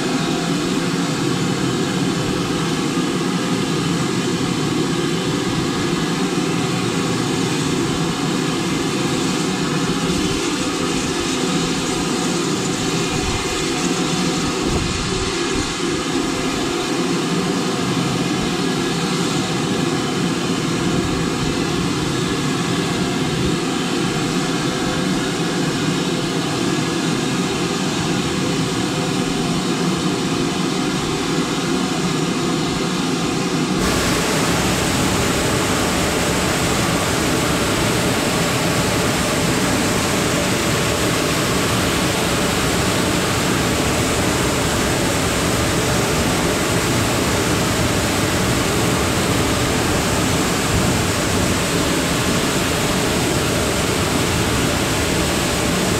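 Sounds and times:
steam train rushing and rumbling: 33.4s - 55.9s.

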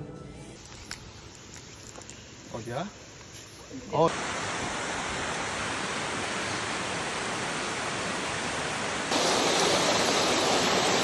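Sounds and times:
stream rushing over rocks: 4.1s - 11.0s.

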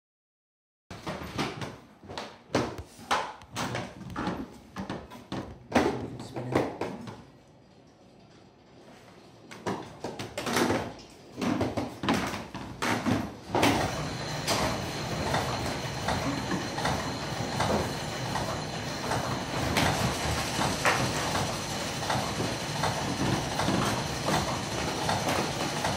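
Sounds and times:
clock mechanism running: 13.6s - 25.9s
clockwork clanks and knocks: 13.6s - 25.9s.

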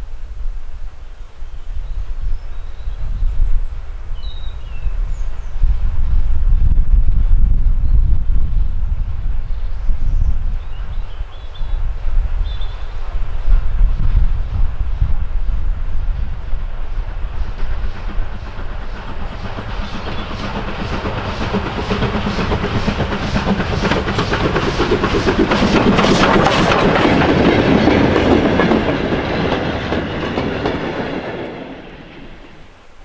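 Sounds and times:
carriages rumbling on rails: 1.7s - 33.0s
steam locomotive chuffing: 12.2s - 32.8s.

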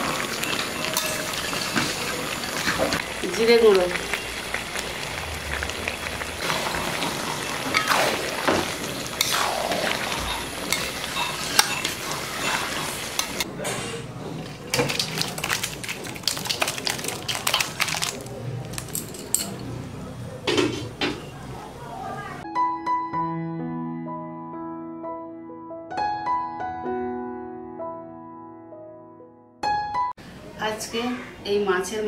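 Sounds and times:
metal utensils and pots clinking: 0.0s - 5.0s, 6.1s - 19.8s, 20.4s - 21.3s.

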